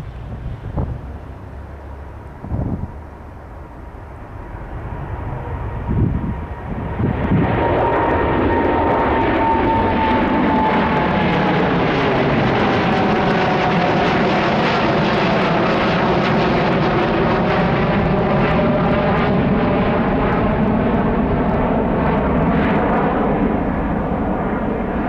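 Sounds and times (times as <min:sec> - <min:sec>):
jet engine roar: 0:00.0 - 0:25.0
wind thumps on microphone: 0:00.2 - 0:01.1, 0:02.4 - 0:03.0.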